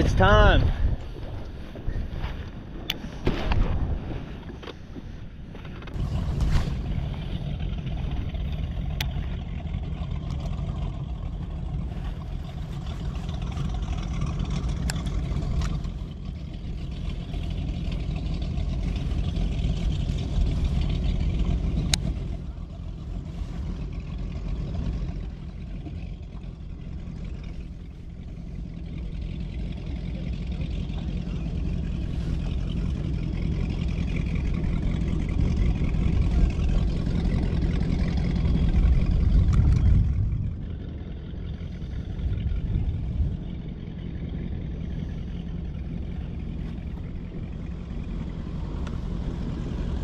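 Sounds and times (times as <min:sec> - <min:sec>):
boat motor running: 0:00.0 - 0:50.0.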